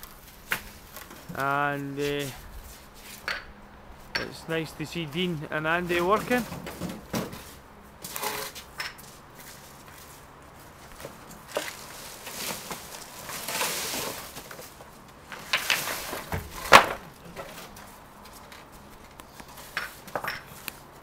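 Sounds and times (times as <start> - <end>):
wooden boards knocking and scraping: 6.1 - 7.6, 11.0 - 17.9.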